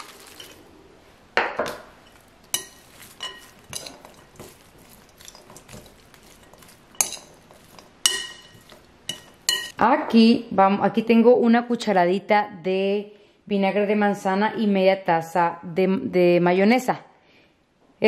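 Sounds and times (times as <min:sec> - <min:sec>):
fork clinking against glass: 0:02.0 - 0:09.7
fork scraping in bowl: 0:02.0 - 0:09.7.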